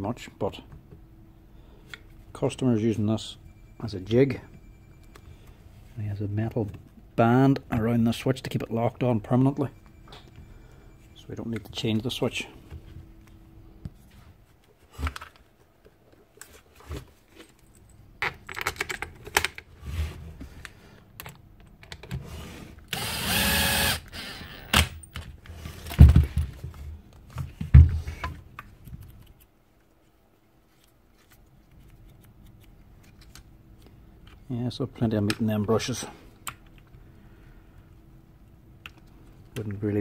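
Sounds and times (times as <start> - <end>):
cordless driver running: 22.9 - 24.8.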